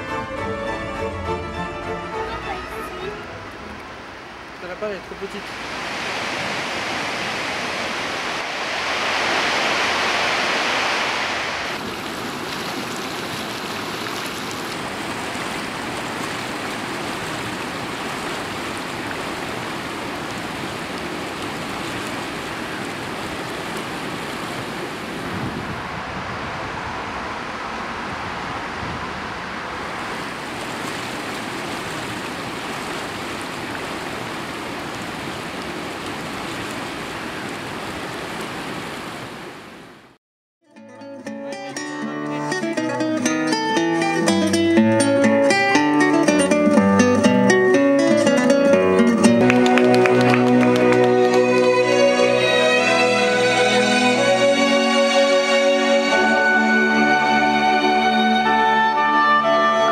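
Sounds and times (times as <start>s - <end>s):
river water rushing: 0.0s - 40.2s, 45.4s - 59.9s
water spilling over a weir: 8.3s - 24.2s.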